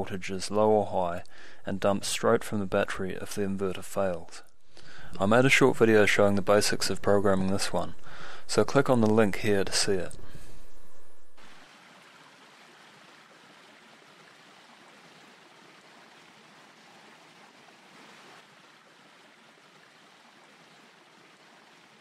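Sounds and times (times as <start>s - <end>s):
stream running over rocks: 11.4s - 22.0s.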